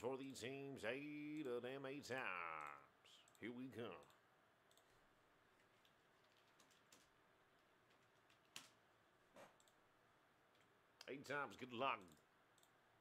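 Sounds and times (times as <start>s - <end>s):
keyboard typing: 5.6s - 7.2s, 7.8s - 8.8s.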